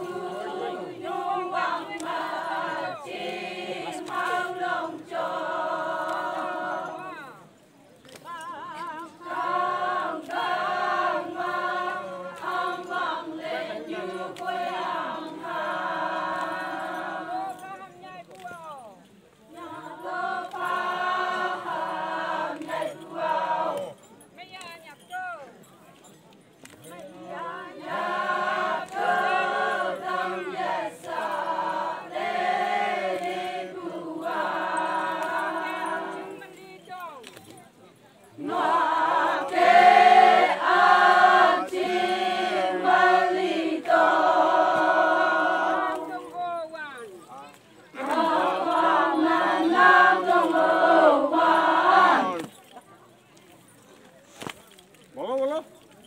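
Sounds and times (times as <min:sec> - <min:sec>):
women singing in chorus: 0:00.0 - 0:07.4, 0:08.2 - 0:17.6, 0:19.5 - 0:24.0, 0:27.1 - 0:36.6, 0:38.4 - 0:46.4, 0:48.0 - 0:52.6.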